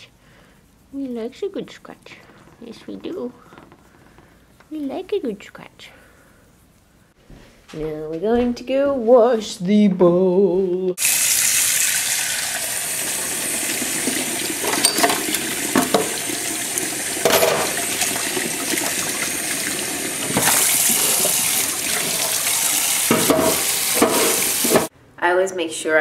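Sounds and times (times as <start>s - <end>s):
tap running into metal sink: 13.6s - 16.5s, 17.2s - 19.3s, 20.2s - 24.9s
bowl knocking: 17.2s - 17.9s, 23.1s - 24.9s.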